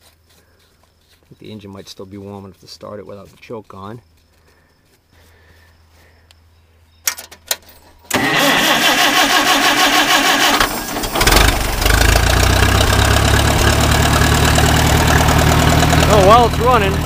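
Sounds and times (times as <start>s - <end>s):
starter motor cranking: 8.1s - 17.0s
tractor engine idling: 8.1s - 17.0s.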